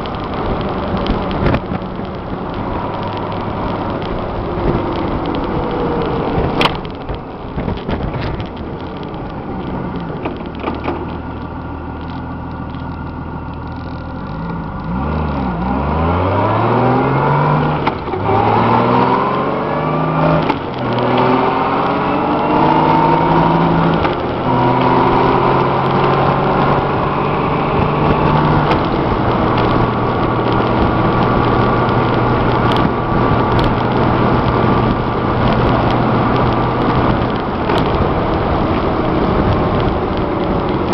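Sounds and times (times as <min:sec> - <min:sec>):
tire road noise: 0:00.0 - 0:40.9
wind noise: 0:00.0 - 0:40.9
motorcycle engine accelerating: 0:09.8 - 0:40.9.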